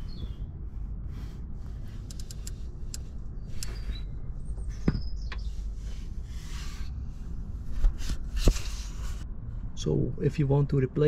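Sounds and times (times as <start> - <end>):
steady low rumble: 0.0 - 11.0
scattered clicks: 2.0 - 4.0.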